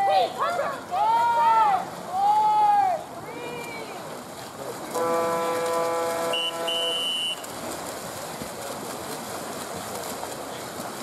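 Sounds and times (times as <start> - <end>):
swimmers splashing water: 0.0 - 11.0
referee's whistle blasts: 6.3 - 7.4.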